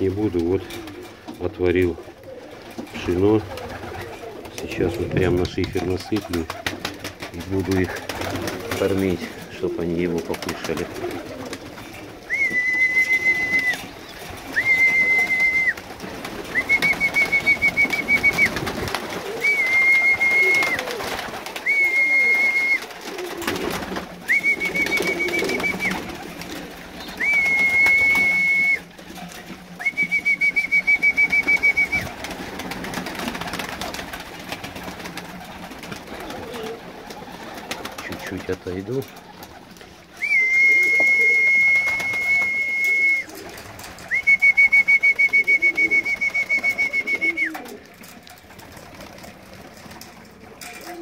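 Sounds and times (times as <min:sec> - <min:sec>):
pigeons cooing: 0:00.0 - 0:51.0
high steady whistle: 0:27.2 - 0:28.8, 0:40.2 - 0:43.3.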